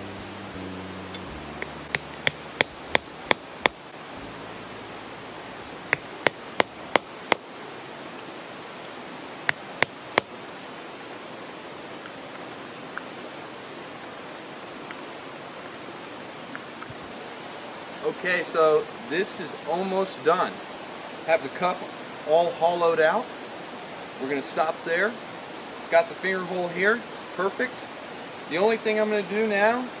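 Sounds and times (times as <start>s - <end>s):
steady hiss: 0.0s - 30.0s
hatchet knocking on wood: 1.6s - 3.8s, 5.9s - 7.4s, 9.5s - 10.3s.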